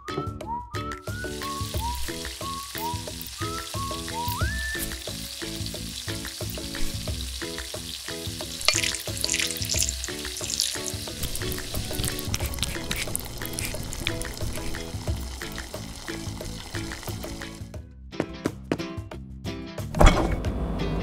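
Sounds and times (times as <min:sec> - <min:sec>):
plucked background music: 0:00.0 - 0:21.0
oil sizzling in a pan: 0:01.0 - 0:17.7.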